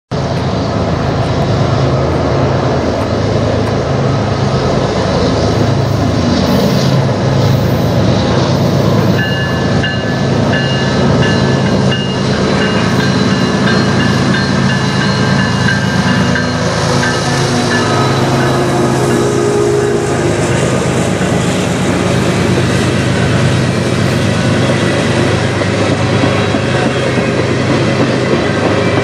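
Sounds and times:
diesel locomotive engine drone: 0.1s - 29.0s
train wheels clattering on rail: 0.2s - 4.5s, 5.2s - 29.0s
locomotive bell ringing: 9.0s - 29.0s.

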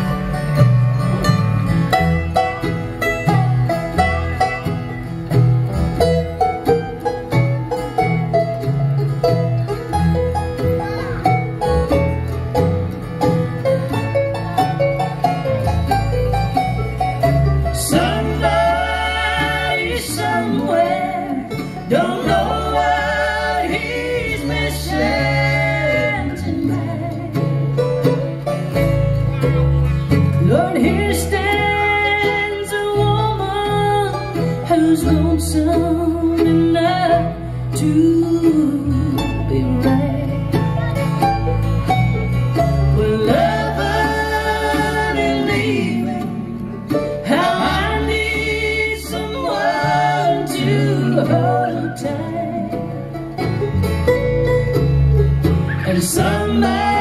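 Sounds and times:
acoustic guitars: 0.0s - 57.0s
mandolin: 0.0s - 57.0s
upright bass: 0.0s - 57.0s
woman singing: 17.8s - 27.6s, 30.4s - 40.9s, 42.9s - 46.6s, 47.2s - 53.0s, 55.8s - 57.0s.

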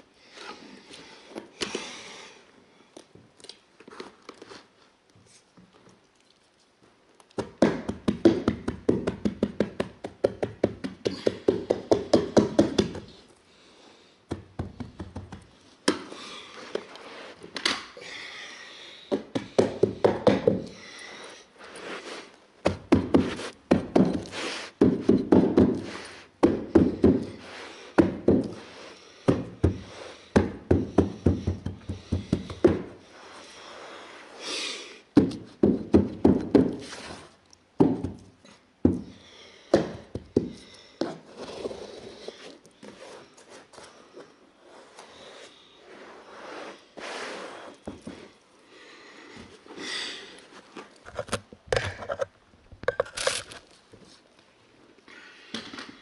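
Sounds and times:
carpet tool knocking on stair: 30.4s - 32.9s.

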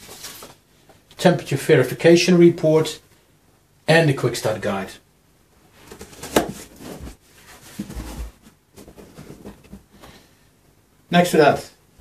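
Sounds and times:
cardboard box rustling and scraping: 5.9s - 9.9s.

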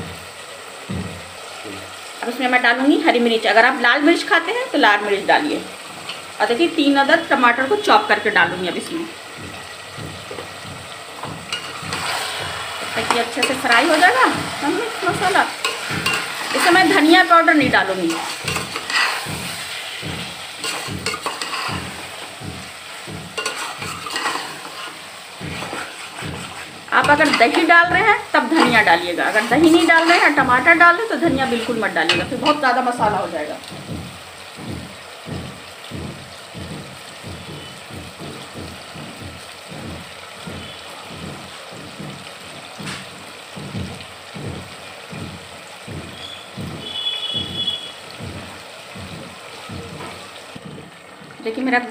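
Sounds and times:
chicken sizzling in oil: 0.0s - 51.9s
bubbling pops: 4.4s - 51.9s
metal spoon scraping a pot: 11.5s - 14.6s, 18.1s - 19.7s, 20.6s - 22.2s, 23.4s - 27.7s.

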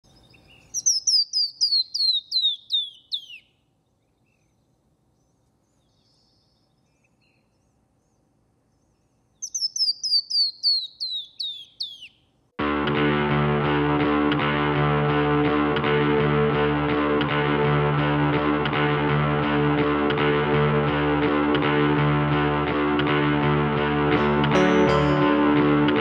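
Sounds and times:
bird whistling cascading song: 0.1s - 8.2s, 8.8s - 12.2s
distorted electric guitar music: 12.6s - 26.0s.

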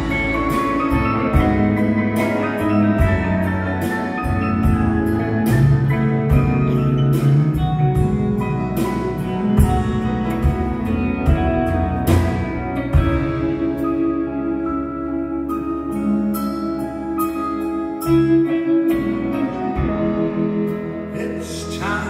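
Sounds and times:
drums: 0.0s - 22.0s
grand piano: 0.0s - 22.0s.

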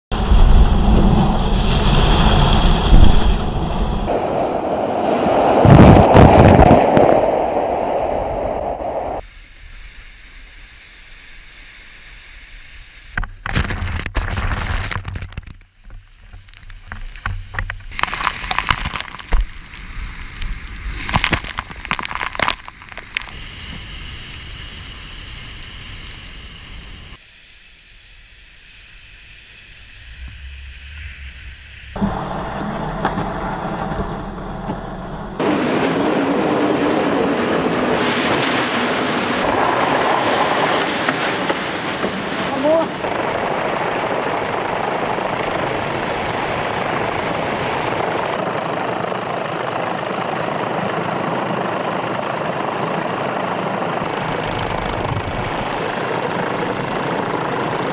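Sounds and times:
seawater rushing over deck: 0.1s - 9.2s, 32.0s - 57.9s.

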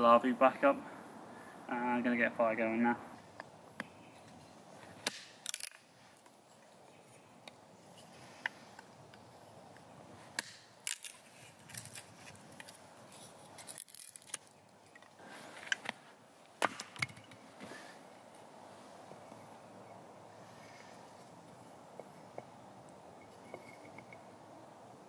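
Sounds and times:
hatchet chopping wood: 5.0s - 5.4s, 10.3s - 10.7s.

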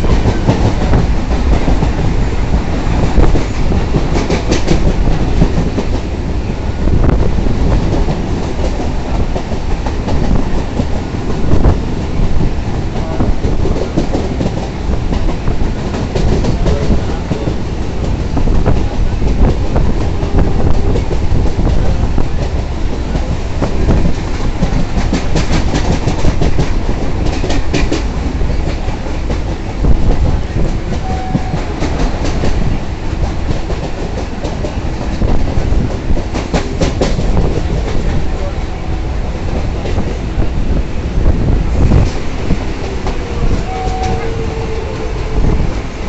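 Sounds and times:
train rumble: 0.0s - 46.0s
wheels clacking over rail joints: 7.8s - 38.5s.

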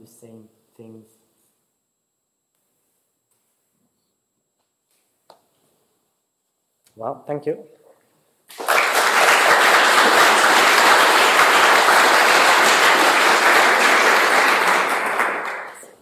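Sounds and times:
audience applauding: 8.5s - 16.0s.

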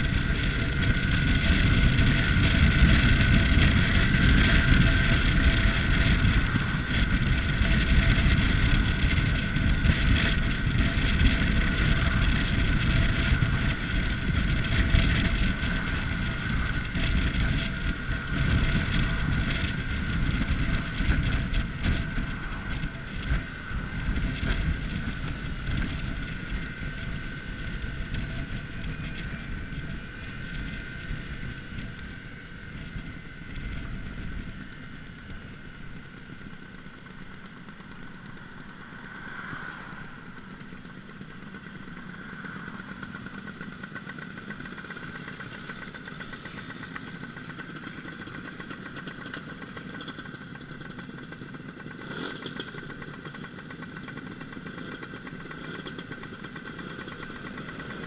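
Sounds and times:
wind rumble on microphone: 0.0s - 37.1s
scooter engine droning: 0.0s - 58.0s.

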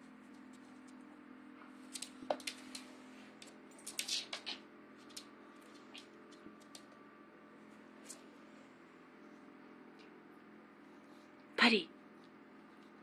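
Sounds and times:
faint steady hum: 0.0s - 13.0s
dog claws clicking on wood floor: 1.9s - 7.0s.

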